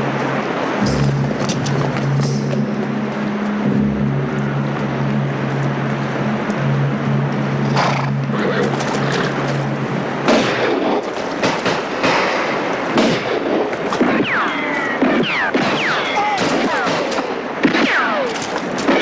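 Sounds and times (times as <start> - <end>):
gunshots: 10.3 - 19.0.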